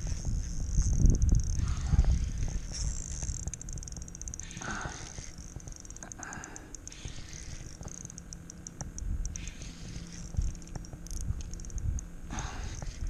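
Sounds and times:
low rumble: 0.0 - 6.3
fishing reel clicking: 0.0 - 13.0.

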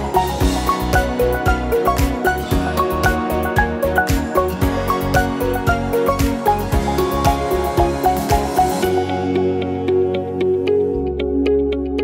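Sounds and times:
held tones and plucked notes: 0.0 - 12.0
kick drum beat: 0.1 - 8.8.

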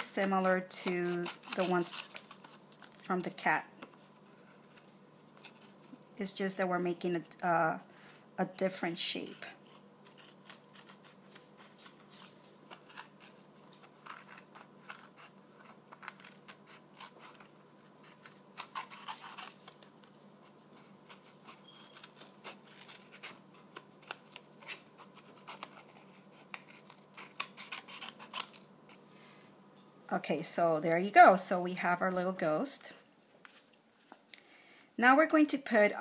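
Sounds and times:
scissors snipping paper: 0.0 - 3.9, 9.2 - 20.0, 20.8 - 28.6.

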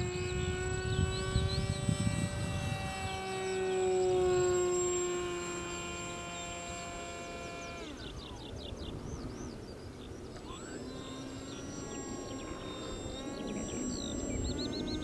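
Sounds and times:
wind rumble on microphone: 0.0 - 5.3
birds chirping: 0.0 - 15.0
model plane motor whine: 0.0 - 15.0.

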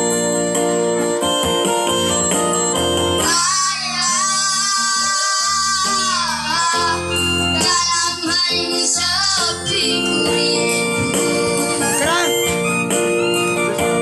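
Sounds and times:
electronic keyboard accompaniment: 0.0 - 14.0
two boys singing: 3.2 - 12.3.

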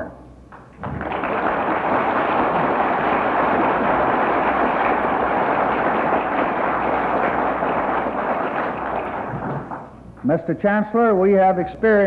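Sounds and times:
crowd applauding: 0.6 - 10.0.

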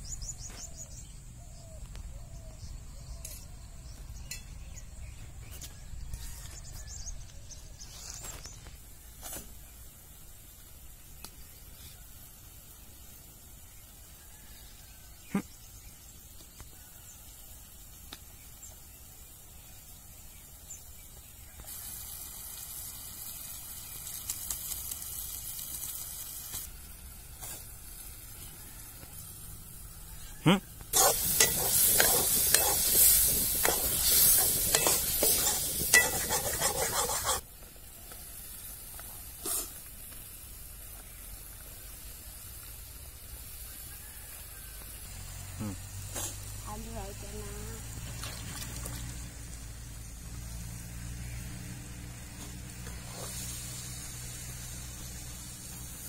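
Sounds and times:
sauce sizzling in a pan: 30.9 - 47.8
metal ladle scraping a pan: 31.0 - 37.4.

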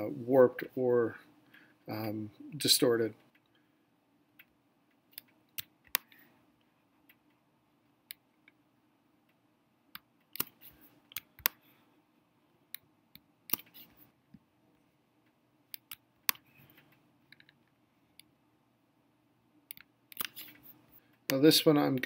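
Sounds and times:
faint steady hum: 0.0 - 22.0
mouse and keyboard clicks: 10.0 - 11.6, 13.5 - 14.0, 15.7 - 17.6, 19.7 - 20.7.

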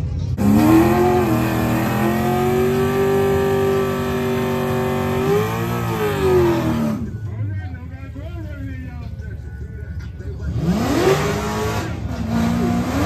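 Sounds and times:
car engine revving high: 0.4 - 7.2, 10.5 - 13.0.

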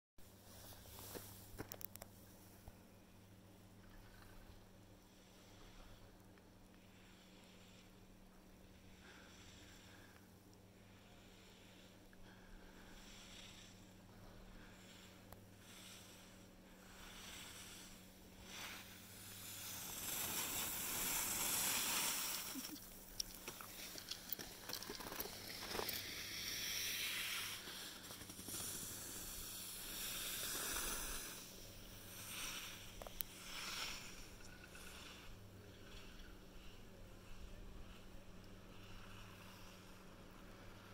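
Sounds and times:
skis scraping over snow: 0.5 - 1.6, 14.4 - 40.9.

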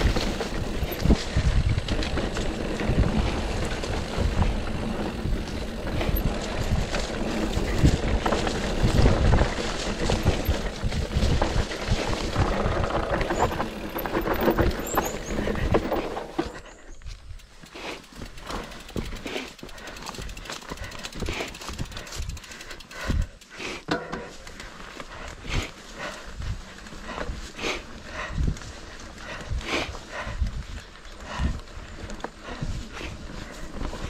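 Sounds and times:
wind on microphone: 0.0 - 17.3
bike tyres on dirt and rock: 0.0 - 34.0.

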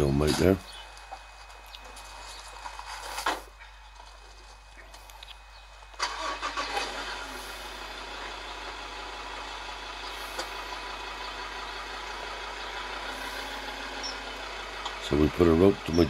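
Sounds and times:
engine starting and running: 5.8 - 16.0.

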